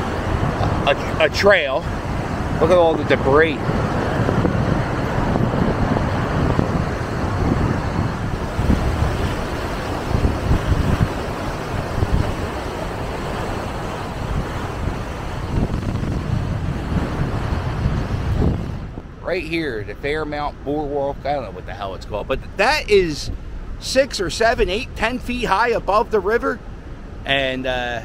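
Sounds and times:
floodwater rushing: 0:00.0 - 0:19.6
wind buffeting microphone: 0:00.0 - 0:27.3.

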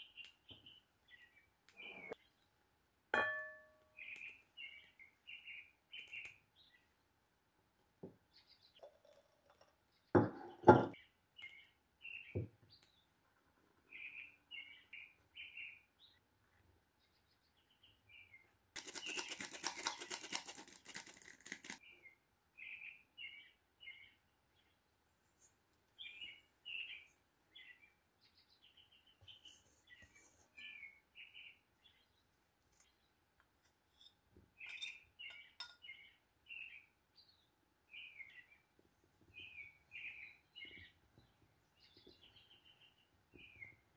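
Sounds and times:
songbirds chirping: 0:00.0 - 0:20.2, 0:21.6 - 0:43.9
whisk rattling in glass bowl: 0:18.8 - 0:21.8.

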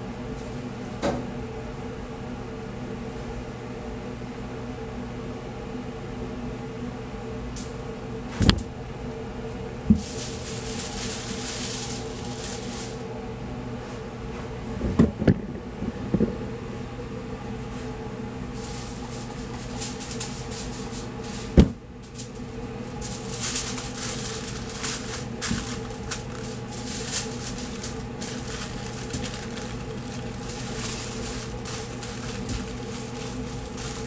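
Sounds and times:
steady machine hum: 0:00.0 - 0:34.0
aluminium foil crinkling: 0:10.0 - 0:13.0, 0:18.5 - 0:34.0.

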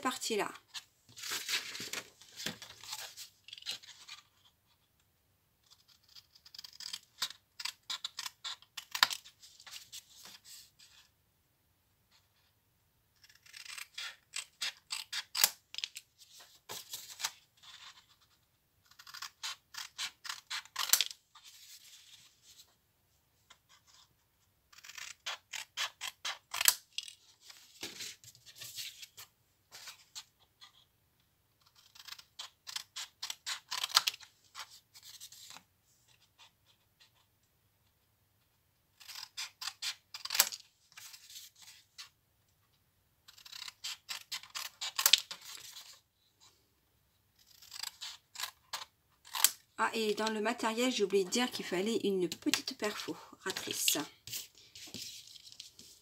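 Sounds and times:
scissors snipping cardstock: 0:18.9 - 0:21.2, 0:47.5 - 0:51.6, 0:52.3 - 0:54.5.

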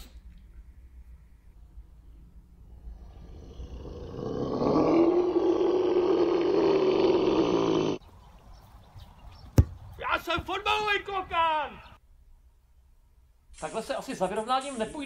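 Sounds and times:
long loud roar: 0:02.8 - 0:08.0
football being kicked: 0:09.4 - 0:10.5.

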